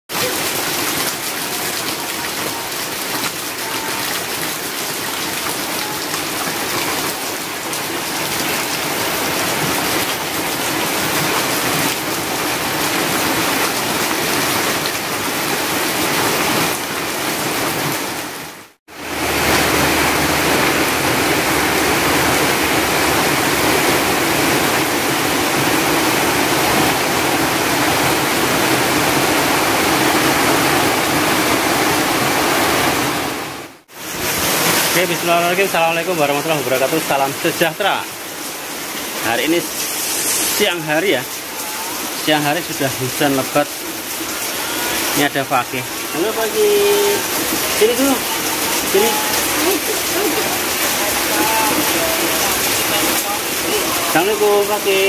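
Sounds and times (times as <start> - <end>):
heavy rain falling: 0.1 - 55.0.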